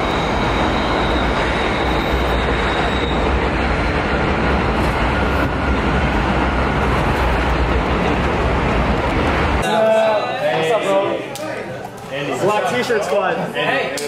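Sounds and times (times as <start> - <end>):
city street traffic roar: 0.0 - 9.6.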